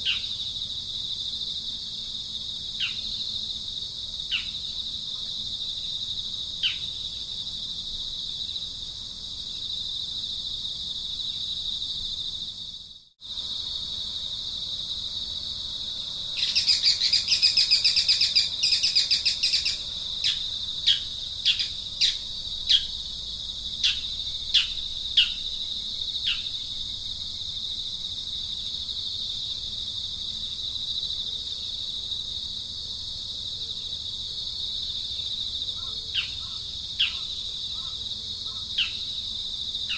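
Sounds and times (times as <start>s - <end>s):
high-pitched insect drone: 2.4s - 32.8s.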